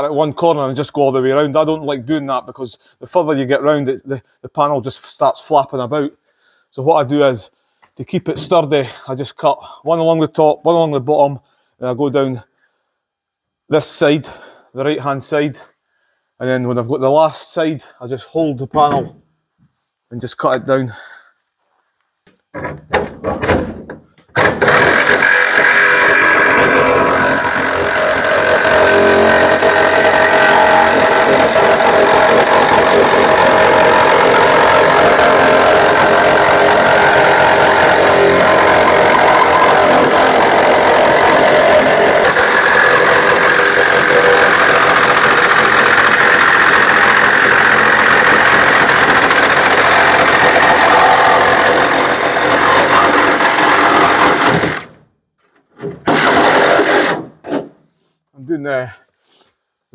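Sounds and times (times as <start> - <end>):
reciprocating saw cutting metal: 24.4 - 54.9.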